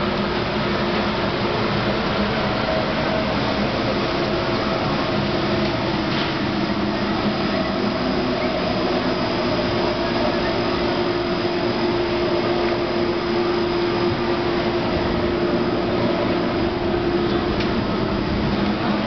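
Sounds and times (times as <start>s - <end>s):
conveyor mechanical hum: 0.0s - 19.0s.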